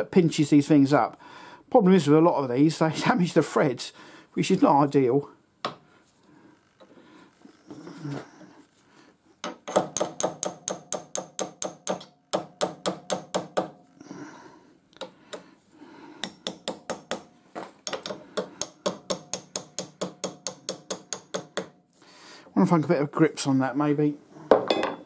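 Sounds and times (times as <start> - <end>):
hammer tapping metal punch: 9.4 - 13.8, 16.2 - 21.8.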